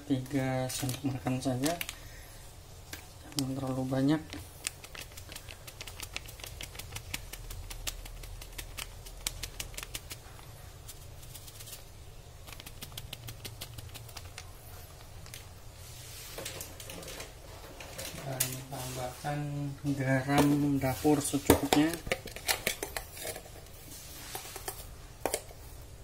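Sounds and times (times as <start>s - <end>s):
powder shaken into plastic jar: 10.9s - 14.4s.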